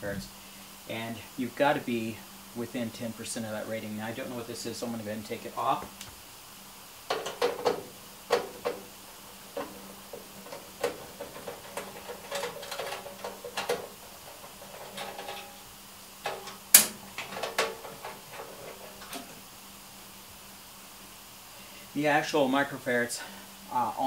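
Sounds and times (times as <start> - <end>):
small clicks knocks and rattles: 7.0 - 19.4.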